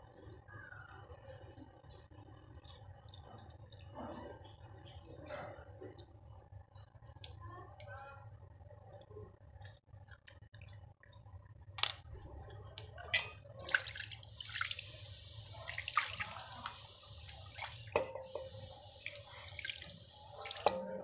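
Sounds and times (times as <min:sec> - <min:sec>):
water pouring and splashing: 0:13.6 - 0:21.0.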